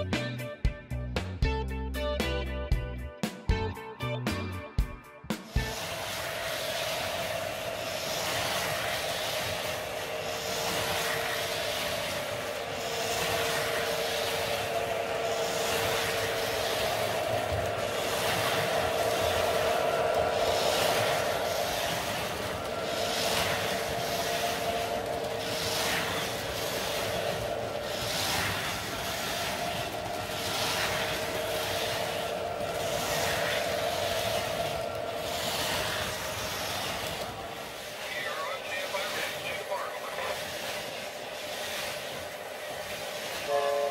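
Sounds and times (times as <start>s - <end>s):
guitar music: 0.0s - 5.7s
model train whirring rumble: 5.3s - 43.9s
motor hum: 5.5s - 38.0s.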